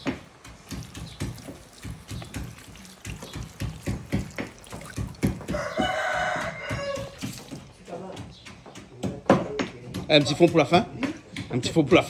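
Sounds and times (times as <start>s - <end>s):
rooster crowing: 5.3s - 7.5s.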